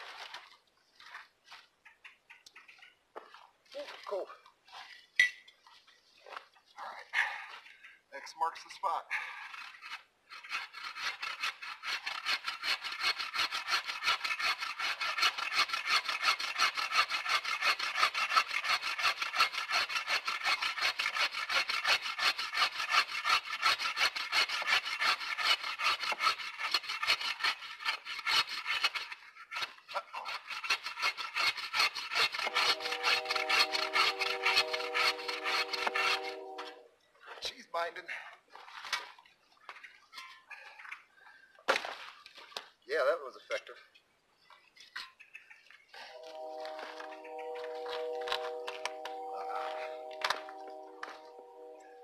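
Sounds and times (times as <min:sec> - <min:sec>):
saw cutting through log: 0:09.4 - 0:36.8, 0:46.1 - 0:52.0
steady humming tone: 0:46.2 - 0:52.0.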